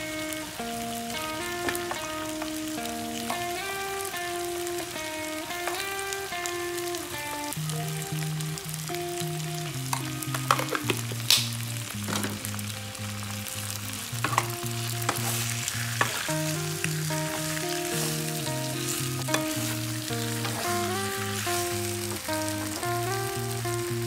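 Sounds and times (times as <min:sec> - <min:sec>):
background music melody: 0:00.0 - 0:24.0
vegetables sizzling in a wok: 0:00.0 - 0:24.0
wooden spatula stirring vegetables: 0:14.2 - 0:23.1.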